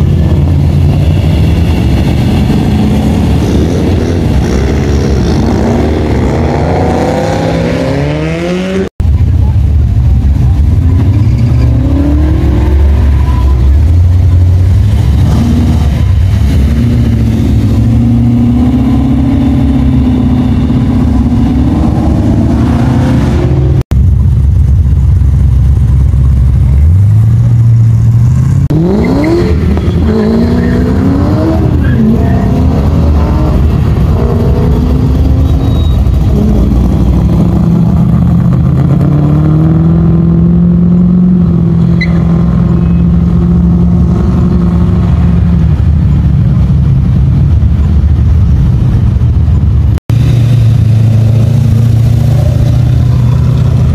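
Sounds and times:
car engines pulling away: 0:00.0 - 0:53.9
car engine revving hard: 0:00.3 - 0:08.9.

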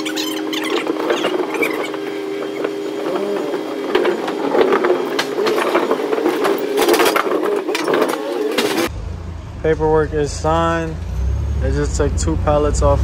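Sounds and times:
pallet jack wheels rattling: 0:00.0 - 0:08.9
squeaking: 0:00.0 - 0:08.9.

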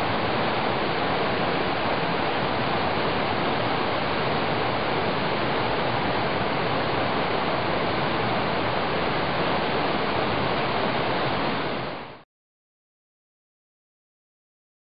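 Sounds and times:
creek water rushing: 0:00.0 - 0:12.2.

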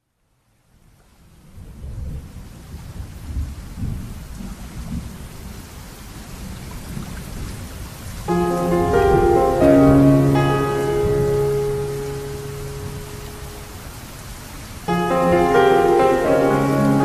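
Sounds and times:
steady rain: 0:00.0 - 0:17.0
low rolling thunder: 0:01.5 - 0:05.6.

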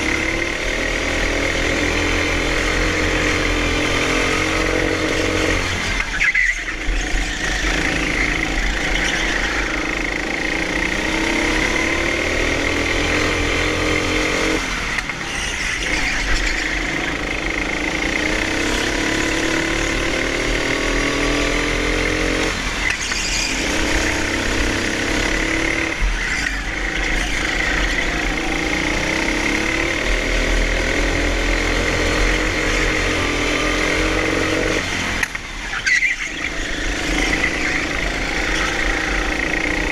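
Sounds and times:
go-kart engine revving: 0:00.0 - 0:39.9
tyre squeal: 0:02.2 - 0:29.8, 0:35.4 - 0:39.9.

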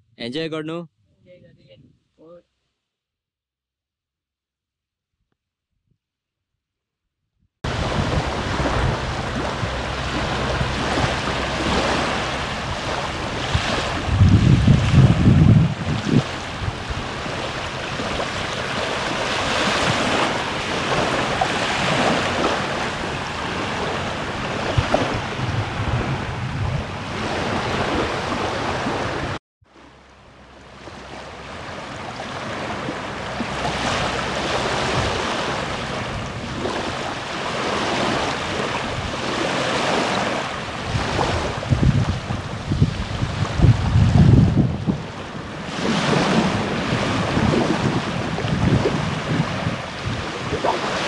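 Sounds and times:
wind buffeting microphone: 0:07.7 - 0:29.4, 0:31.0 - 0:51.0
small waves lapping on sand: 0:07.7 - 0:51.0.

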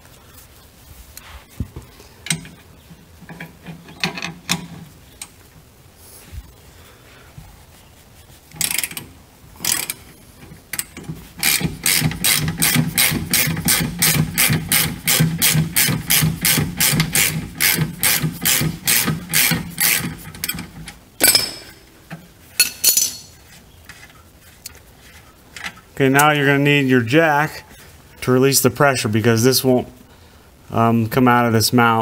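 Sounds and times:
socket ratchet clicking: 0:08.5 - 0:21.7.

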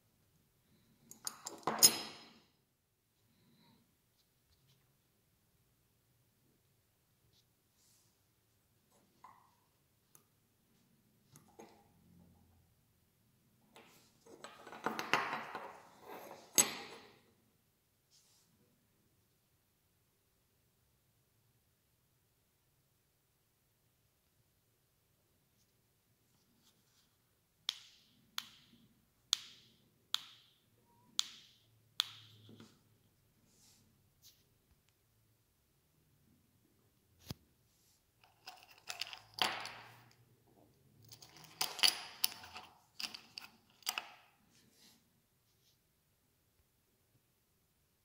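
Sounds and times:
metallic clinking and scraping: 0:01.0 - 0:02.4, 0:15.5 - 0:17.2, 0:38.2 - 0:40.2, 0:41.0 - 0:44.2.

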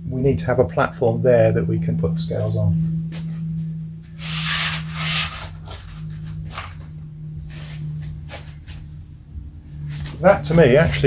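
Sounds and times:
foam blocks rubbing and scraping: 0:04.2 - 0:06.8.

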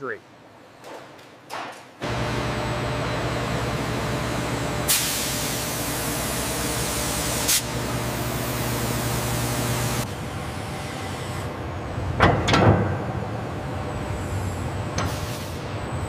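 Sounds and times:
low machine hum: 0:02.0 - 0:16.0
coolant spraying hiss: 0:04.9 - 0:07.7.

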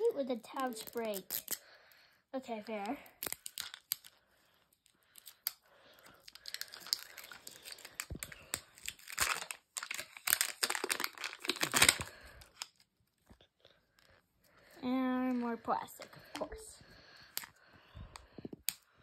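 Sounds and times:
plastic wrapping tearing and crinkling: 0:00.5 - 0:01.6, 0:02.7 - 0:13.4.

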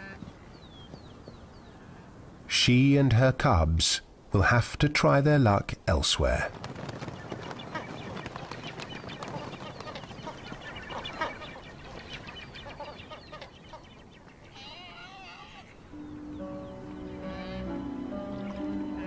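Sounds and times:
waterbirds chirping: 0:00.0 - 0:03.6, 0:04.4 - 0:19.0
wingbeats: 0:06.2 - 0:14.4
wavering bird call: 0:14.4 - 0:19.0.

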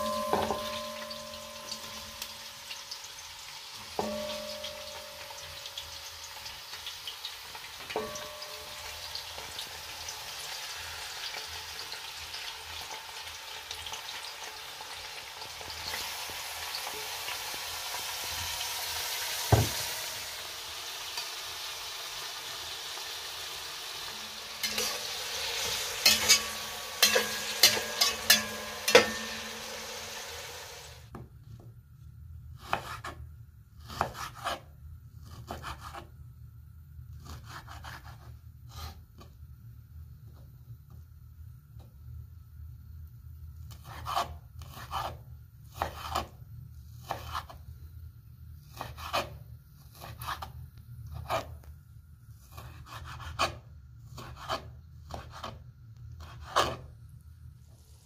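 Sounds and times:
utensil clinking against pot: 0:00.0 - 0:02.0, 0:24.6 - 0:29.9
vegetables sizzling in a pot: 0:00.0 - 0:31.1, 0:57.6 - 0:58.0
knife slicing meat on board: 0:32.6 - 0:33.2, 0:33.8 - 0:34.6, 0:35.2 - 0:36.1, 0:37.2 - 0:39.0, 0:43.7 - 0:46.3, 0:47.0 - 0:47.6, 0:48.7 - 0:50.5, 0:52.4 - 0:55.6, 0:56.2 - 0:56.9.

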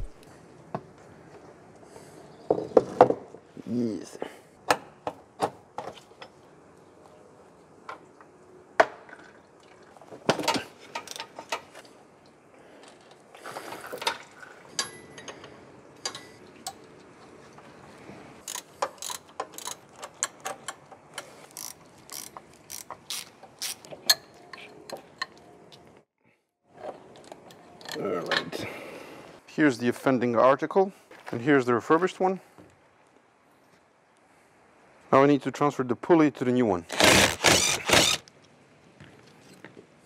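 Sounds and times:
ratchet wrench clicking: 0:18.4 - 0:19.8, 0:21.6 - 0:23.8.

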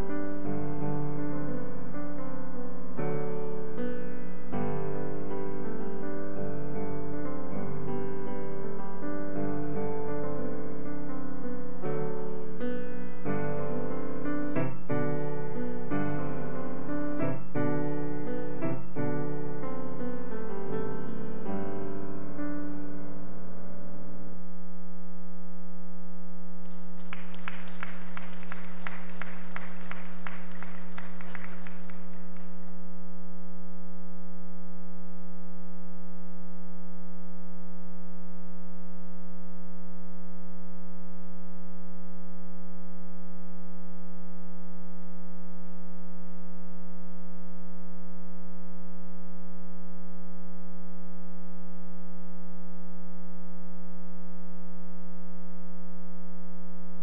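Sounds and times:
piano piece: 0:00.0 - 0:23.9
audience applauding: 0:26.7 - 0:32.6.

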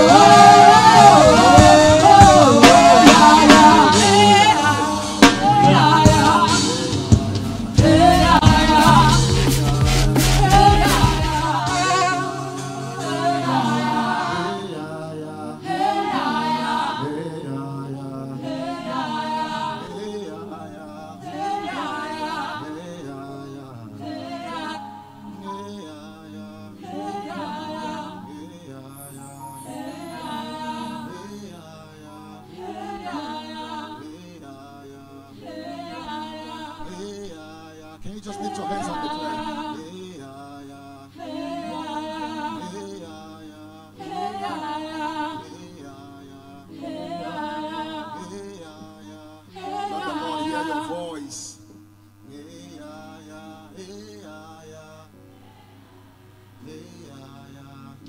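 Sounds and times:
worship singing: 0:00.0 - 0:58.0
man singing into a microphone: 0:36.8 - 0:41.1.

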